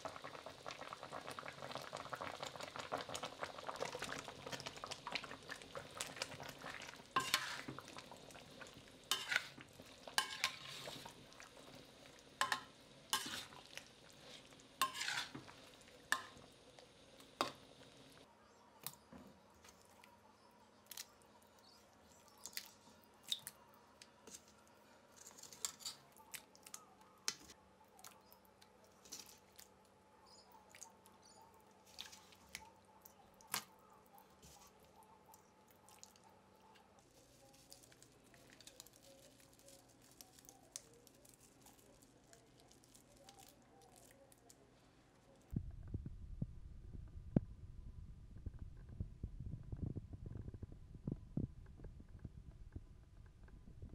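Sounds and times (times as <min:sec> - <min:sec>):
wet squishing: 0:30.5 - 0:44.6
low rumbling noise: 0:45.5 - 0:53.9.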